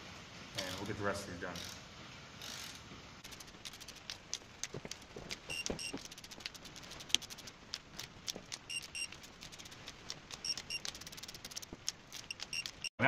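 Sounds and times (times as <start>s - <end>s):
torque wrench clicking rapidly: 2.4s - 12.9s
short high beeps: 5.5s - 6.0s, 8.7s - 9.2s, 10.4s - 10.9s.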